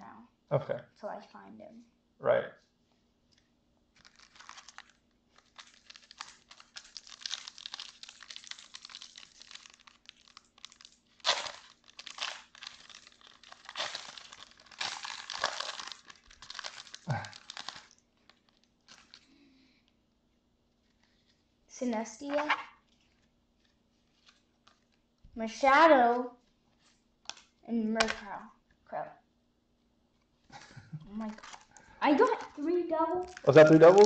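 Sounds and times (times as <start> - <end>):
wrapper crinkling and tearing: 3.9 - 19.4, 22.2 - 25.0, 31.2 - 34.0.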